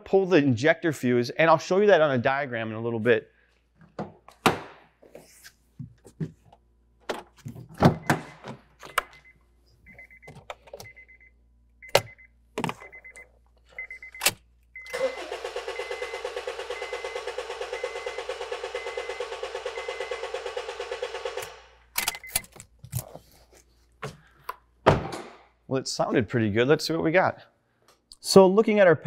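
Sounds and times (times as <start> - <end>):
car warning chime beeping: 8.0 - 20.5
starter cranking engine: 14.9 - 22.2.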